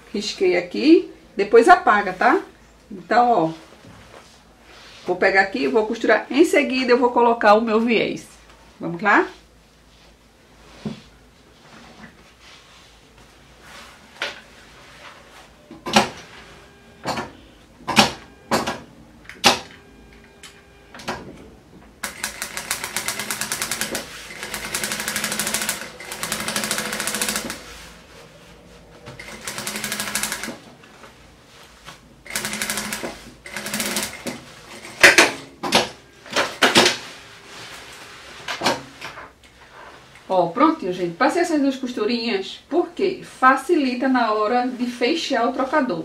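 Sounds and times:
industrial sewing machine stitching: 22.0s - 27.7s, 29.2s - 30.7s, 32.2s - 36.0s.

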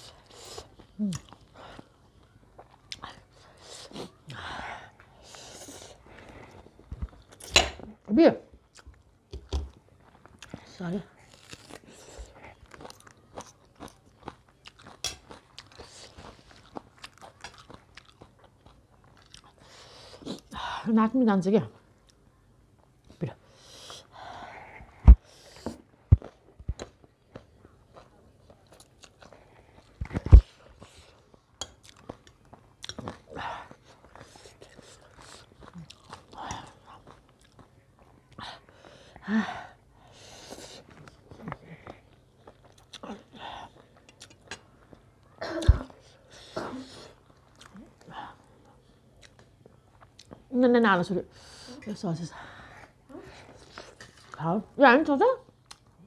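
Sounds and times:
crunchy food being chewed: 0.0s - 7.5s, 8.6s - 20.5s, 25.1s - 39.1s, 40.3s - 50.5s, 55.4s - 56.0s.

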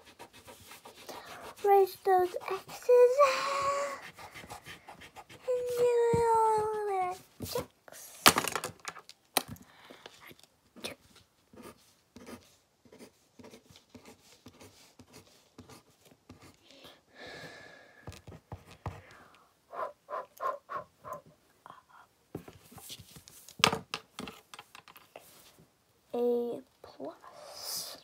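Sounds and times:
eraser rubbing on paper: 0.0s - 3.2s, 3.9s - 6.1s.

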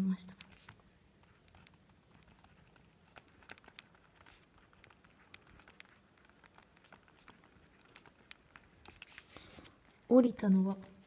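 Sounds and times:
pen writing on paper: 0.5s - 9.3s.

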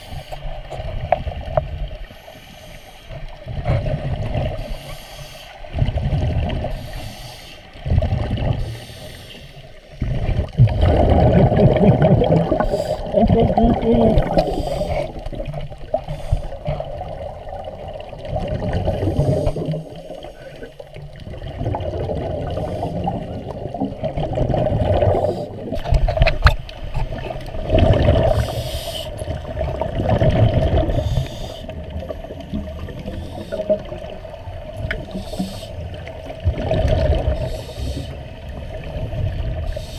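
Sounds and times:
scuba regulator breathing underwater: 2.1s - 5.8s, 6.6s - 7.8s, 8.4s - 17.1s, 17.9s - 20.9s, 21.7s - 23.8s, 24.4s - 26.0s, 27.0s - 29.6s, 30.6s - 34.1s, 35.0s - 36.1s, 36.9s - 38.5s, 39.6s - 39.9s
low underwater rumble: 3.2s - 4.9s, 5.6s - 6.9s, 9.9s - 39.9s
muffled exhaled bubbles rushing: 3.2s - 4.9s, 5.6s - 7.2s, 7.8s - 9.1s, 9.9s - 39.9s.

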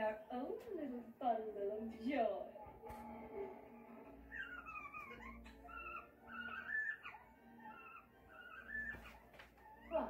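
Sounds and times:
pet whimpering: 4.0s - 10.0s.

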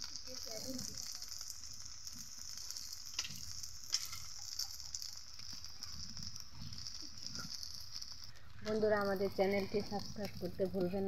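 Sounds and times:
fritters sizzling in oil: 0.0s - 11.0s
oil popping: 0.0s - 11.0s.

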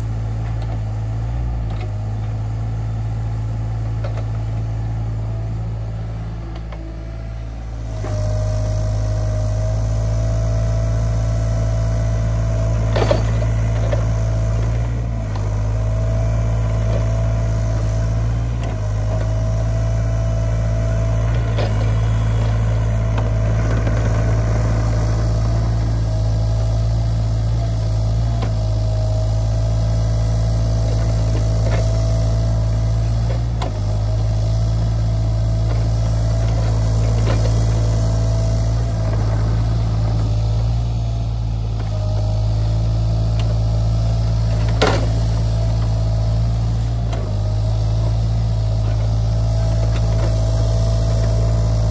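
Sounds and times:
excavator diesel engine running: 0.0s - 51.9s.

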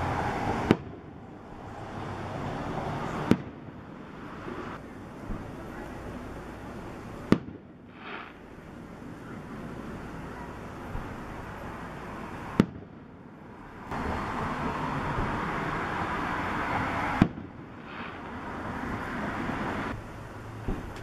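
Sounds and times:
steady rushing noise: 0.0s - 21.0s
firework shell bursts: 7.3s - 8.6s, 17.2s - 19.0s.

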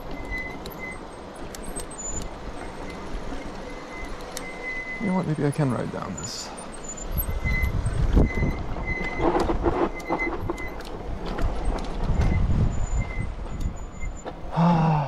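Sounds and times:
thin high brake squeal: 0.0s - 10.9s, 12.1s - 14.4s
bike tyres rattling over stones: 0.0s - 14.5s
wind rumble on microphone: 7.1s - 14.2s.

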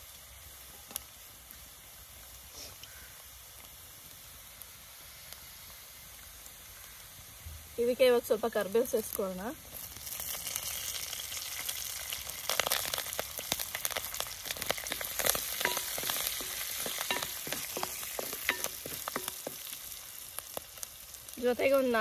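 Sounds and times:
leaves sizzling in hot oil: 0.0s - 22.0s
spoon clinking on pan: 15.6s - 19.6s.

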